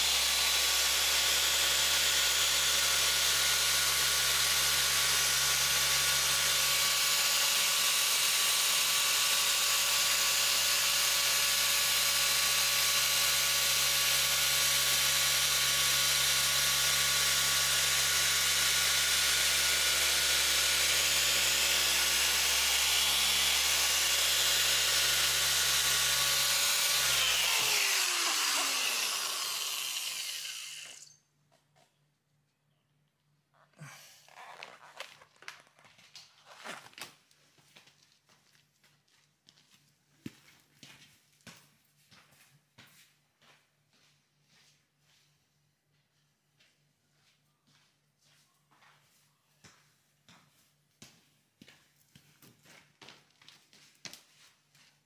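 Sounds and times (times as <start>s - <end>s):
rotary polisher running: 0.0s - 31.2s.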